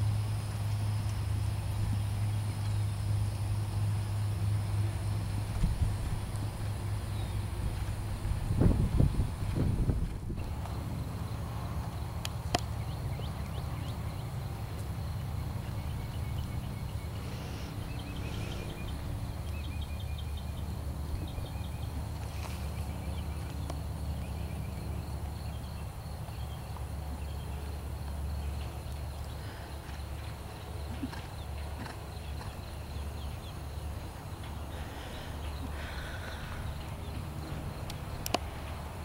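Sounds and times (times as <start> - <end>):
steady low rumble: 0.0 - 22.2
horse hoofbeats on sand: 26.3 - 34.7.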